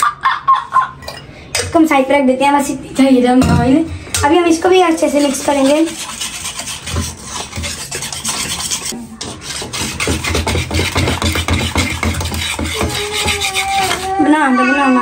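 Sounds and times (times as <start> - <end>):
whisk scraping metal bowl: 3.4 - 14.5.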